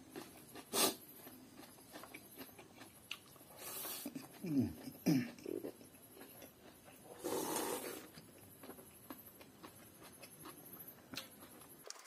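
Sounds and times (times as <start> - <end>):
chewing: 0.0 - 12.0
loud slurp from bowl: 7.1 - 8.1.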